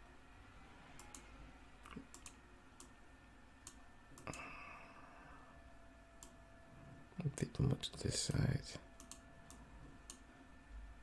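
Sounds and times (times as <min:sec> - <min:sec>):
computer mouse clicks: 0:01.0 - 0:03.0, 0:09.0 - 0:10.2.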